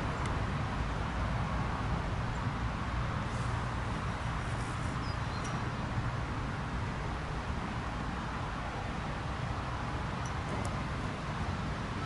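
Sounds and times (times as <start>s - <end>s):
faint high bird chirps: 5.0s - 5.6s.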